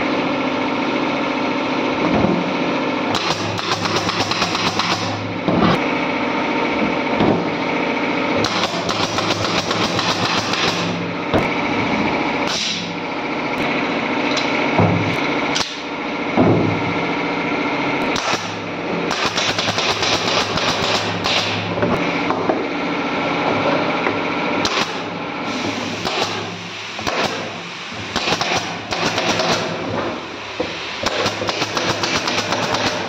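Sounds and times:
nail gun firing: 3.1s - 5.7s, 8.4s - 11.6s, 12.4s - 12.9s, 15.6s - 15.9s, 18.0s - 21.7s, 24.6s - 25.1s, 25.9s - 33.0s.

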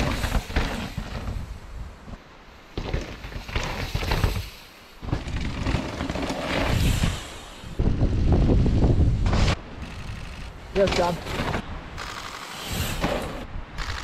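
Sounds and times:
bike tyres on rough dirt: 0.0s - 14.0s
wind on microphone: 6.6s - 10.6s.

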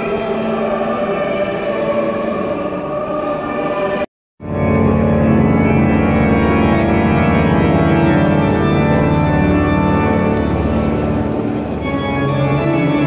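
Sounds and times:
church organ chords: 4.4s - 13.0s.

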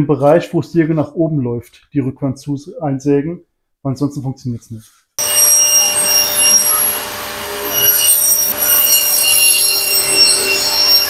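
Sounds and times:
table saw cutting wood: 5.2s - 11.0s.

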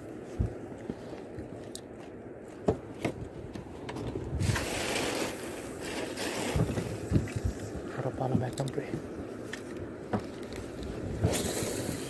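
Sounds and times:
water against boat hull: 0.4s - 12.0s
wind buffeting microphone: 3.1s - 12.0s.

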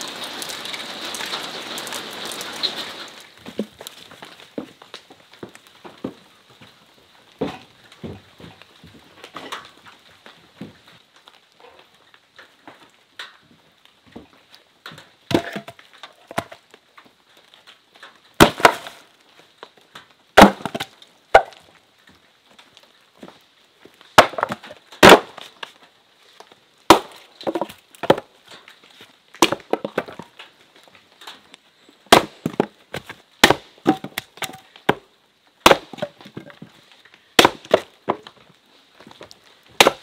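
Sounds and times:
axe splitting firewood: 7.4s - 8.6s, 15.3s - 16.7s, 18.4s - 19.0s, 20.4s - 21.6s, 24.2s - 25.8s, 26.9s - 28.3s, 29.3s - 30.4s, 32.1s - 36.8s, 37.4s - 38.4s, 39.0s - 40.0s.

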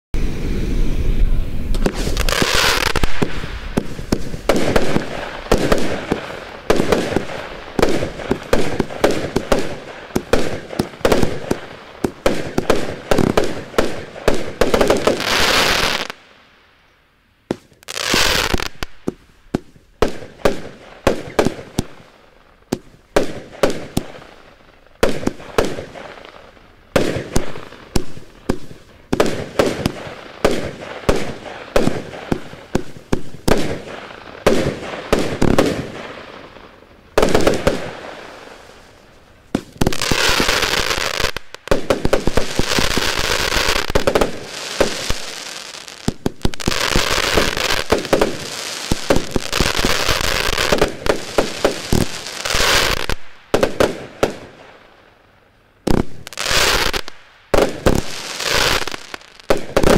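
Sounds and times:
firework cake firing reports: 0.2s - 16.2s
firework crackling: 0.2s - 16.7s, 17.5s - 55.2s, 55.8s - 59.9s.

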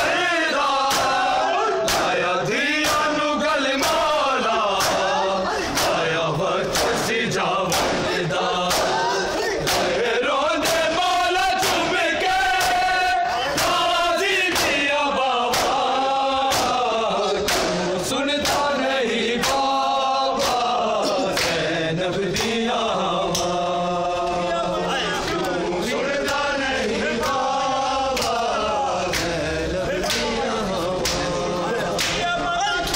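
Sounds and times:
crowd of men chanting: 0.0s - 32.9s
hands slapping chests: 1.8s - 2.2s, 2.8s - 3.2s, 4.7s - 5.1s, 5.7s - 7.1s, 7.7s - 10.0s, 13.5s - 13.8s, 14.5s - 14.9s, 15.5s - 15.9s, 16.5s - 16.8s, 17.4s - 18.8s, 20.4s - 20.7s, 21.3s - 21.7s, 28.2s - 29.4s, 31.0s - 31.3s, 32.0s - 32.3s.

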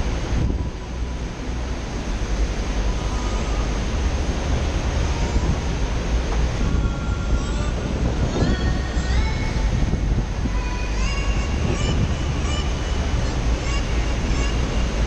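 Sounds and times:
wind rumbling on microphone: 0.0s - 15.0s.

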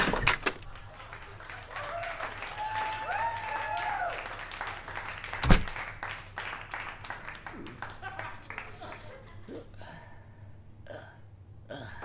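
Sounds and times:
door shutting with thud: 0.0s - 0.7s, 5.4s - 5.8s
door latch click: 5.4s - 5.7s.

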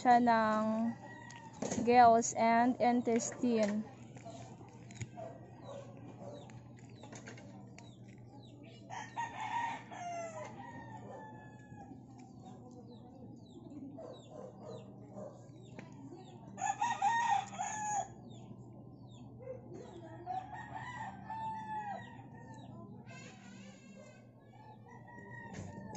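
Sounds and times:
rooster crowing: 8.9s - 11.9s, 16.6s - 18.2s.

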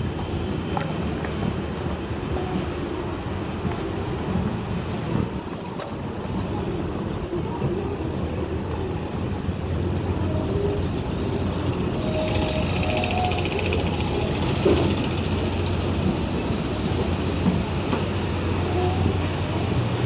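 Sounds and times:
hissing clattering vehicle: 10.9s - 20.0s.

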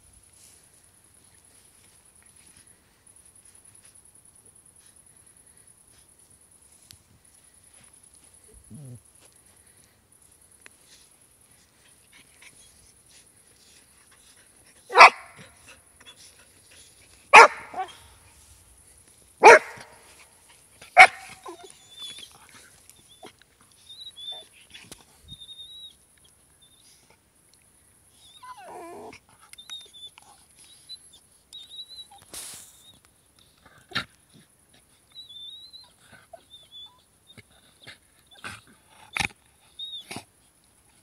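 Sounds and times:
soft dog noises: 0.4s - 41.0s
dog barking: 14.9s - 15.4s, 17.3s - 18.0s, 19.4s - 20.0s, 21.0s - 21.5s.

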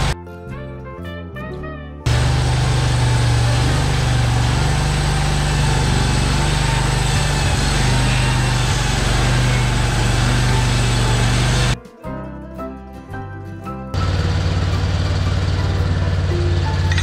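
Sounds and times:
small gasoline engine running: 2.1s - 11.8s, 14.0s - 17.0s.

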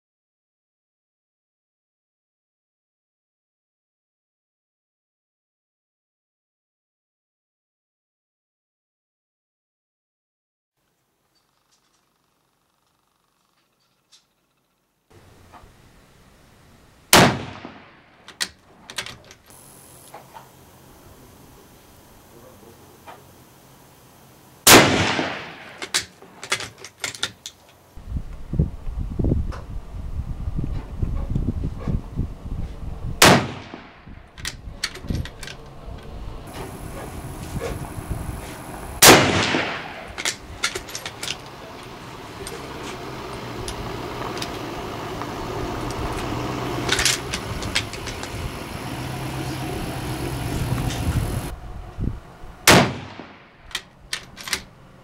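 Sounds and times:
rifle shot: 17.1s - 18.1s, 24.6s - 26.1s, 33.2s - 34.1s, 39.0s - 40.4s, 52.6s - 53.6s
weaker sharp crack: 17.1s - 18.6s, 24.7s - 26.2s, 33.2s - 34.2s, 39.0s - 41.4s, 52.7s - 53.9s.

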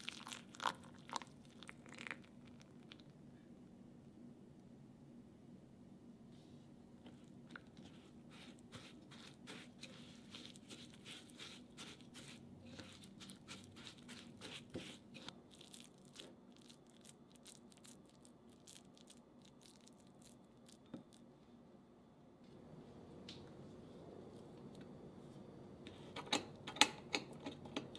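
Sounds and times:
spatula scraping glass bowl: 7.8s - 15.3s.

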